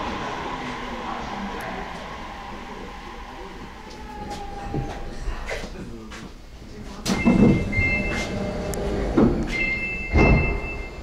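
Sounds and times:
sliding train doors thudding: 7.0 - 11.0
two-tone electronic door chime: 7.2 - 8.6, 9.5 - 11.0.

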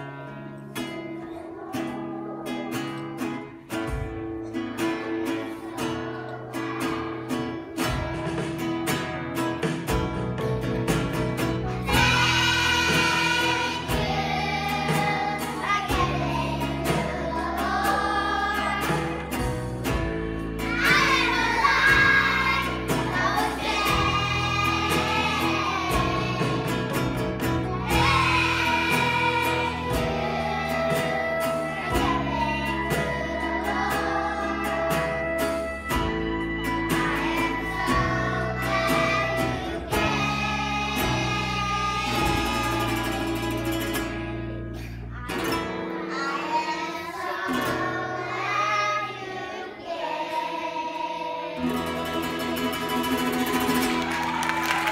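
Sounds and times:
children's choir singing: 0.0 - 9.6, 11.4 - 44.2, 45.1 - 54.9
strummed acoustic guitar: 0.0 - 54.9.

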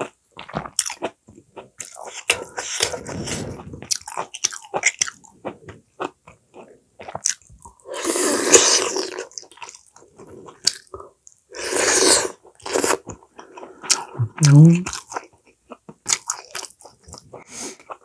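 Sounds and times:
person biting and chewing food: 0.0 - 13.2, 13.8 - 18.0.

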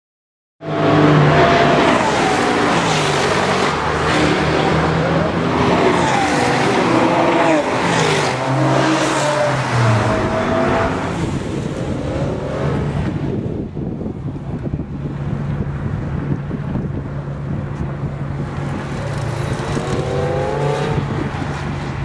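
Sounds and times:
car engine revving hard: 0.7 - 11.1, 18.8 - 21.2.

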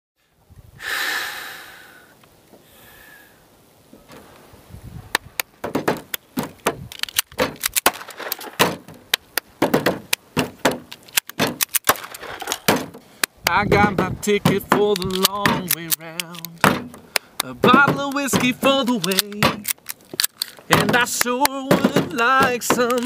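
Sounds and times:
handgun clicks and knocks: 5.1 - 23.0.

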